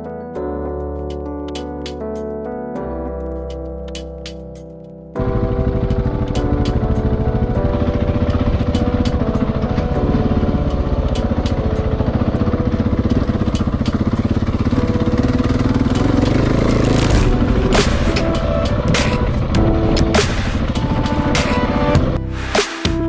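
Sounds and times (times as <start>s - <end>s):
single-cylinder motorcycle engine: 5.2s - 22.0s.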